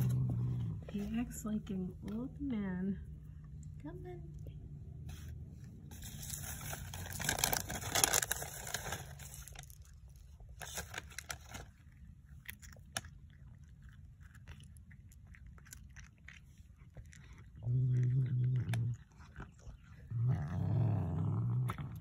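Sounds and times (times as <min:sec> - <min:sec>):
cat crunching treats: 0:05.7 - 0:22.0.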